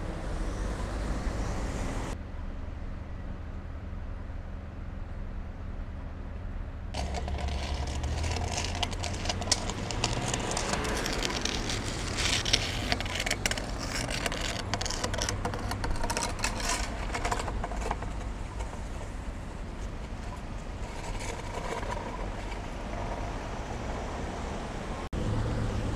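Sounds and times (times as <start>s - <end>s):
cars driving past on wet road: 22.1s - 25.9s.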